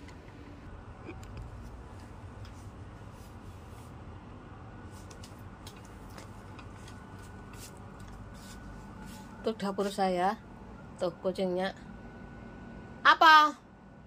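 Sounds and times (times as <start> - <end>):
room background noise: 0.0 - 14.0.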